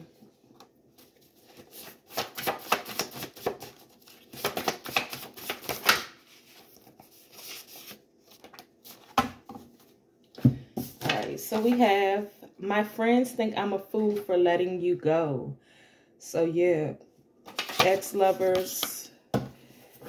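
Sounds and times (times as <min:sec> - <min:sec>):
cards being shuffled: 0:01.0 - 0:09.1
soft card and paper handling: 0:01.0 - 0:09.1.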